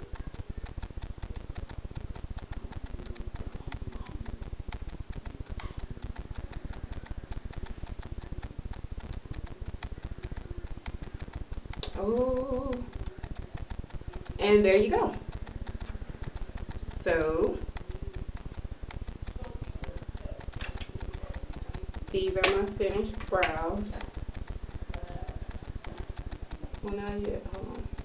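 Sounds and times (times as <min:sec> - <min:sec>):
fast clicking crackle: 0:00.0 - 0:28.0.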